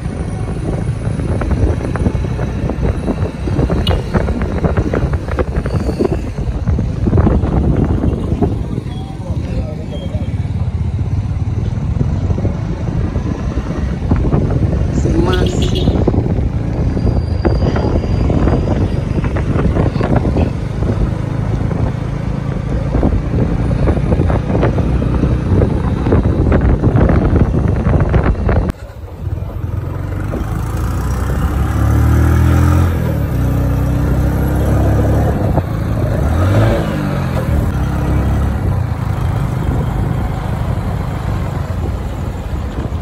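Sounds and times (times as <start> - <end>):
road and wind noise: 0.0 - 43.0
engine speeding up: 10.7 - 43.0.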